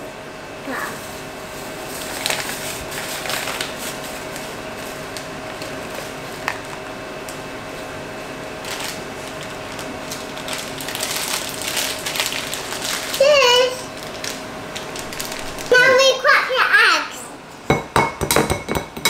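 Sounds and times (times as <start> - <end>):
packets rustling and crinkling: 1.6 - 6.9, 8.6 - 15.8.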